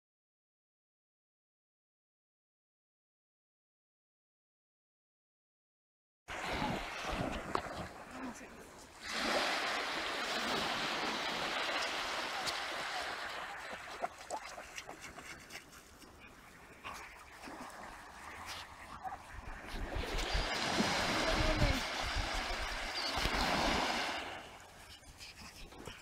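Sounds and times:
small waves washing onto beach: 6.3s - 26.0s
small clicks and splashes: 13.6s - 16.2s.

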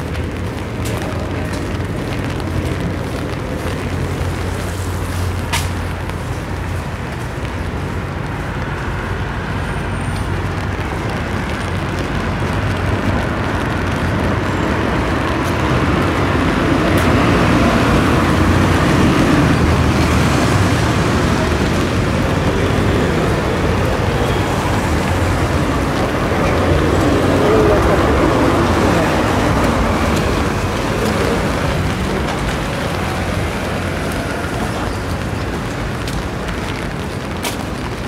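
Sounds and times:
passing traffic rumble and hiss: 0.0s - 38.0s.

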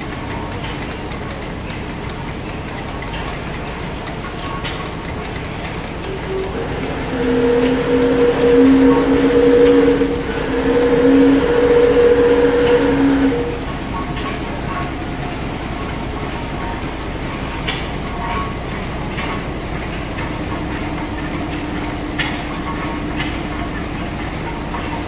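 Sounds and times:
loud steady hum: 0.0s - 25.0s
regular engine knock: 0.0s - 25.0s
steam engines clattering: 0.0s - 25.0s.

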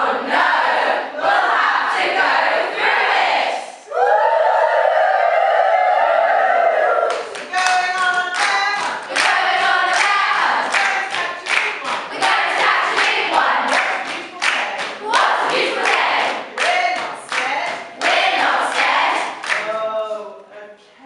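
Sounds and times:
choir singing and chanting: 0.0s - 4.7s, 9.0s - 20.2s
hand claps: 7.1s - 19.8s.

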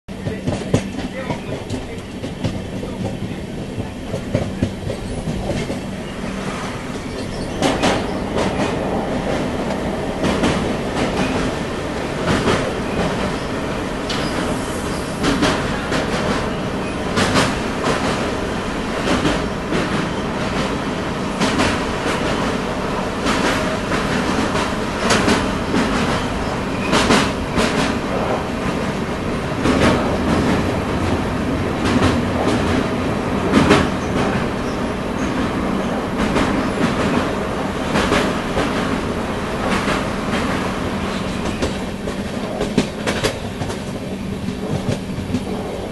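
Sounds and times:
train running gear rumble: 0.1s - 45.9s.

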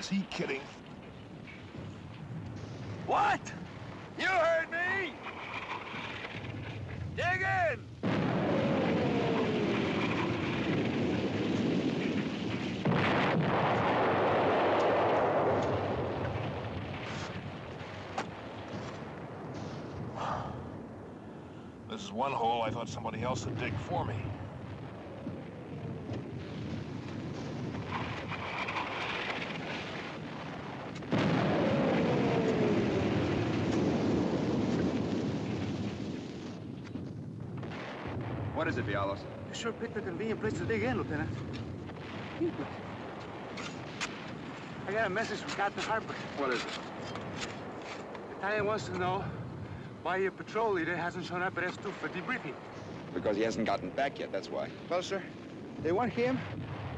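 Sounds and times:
sharp cracks: 0.0s - 20.1s, 24.5s - 49.0s
explosion rumbling: 0.0s - 21.2s, 22.6s - 56.9s
artillery shell blast: 8.0s - 20.1s, 26.2s - 36.7s.

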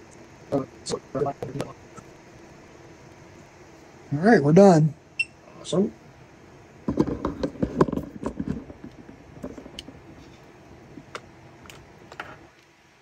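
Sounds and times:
handling clicks and rustles: 6.9s - 12.7s.

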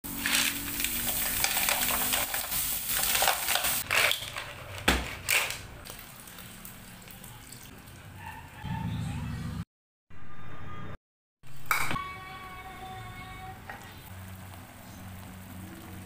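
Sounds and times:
food sizzling in a wok: 0.1s - 3.9s, 13.8s - 16.0s.

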